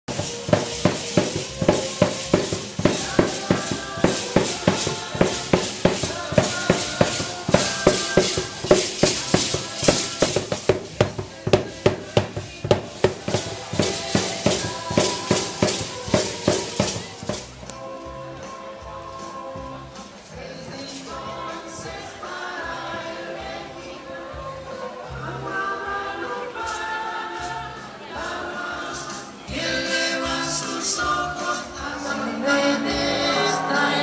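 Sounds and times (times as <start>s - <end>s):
drum beating fast rhythm: 0.0s - 17.7s
stepping melody: 0.1s - 17.7s.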